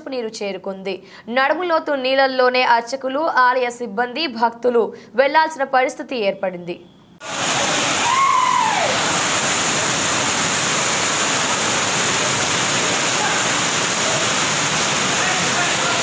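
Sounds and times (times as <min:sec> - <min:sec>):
floodwater gushing over stone floor: 0:07.2 - 0:16.0.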